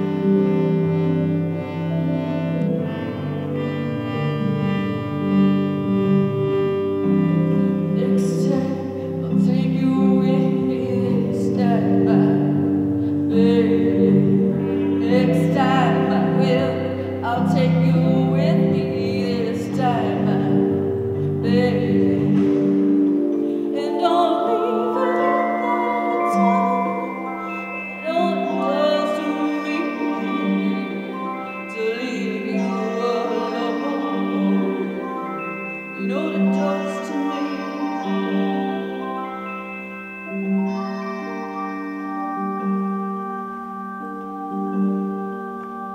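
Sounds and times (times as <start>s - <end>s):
harmonium chords over drone: 0.0s - 45.9s
woman singing: 7.8s - 39.0s.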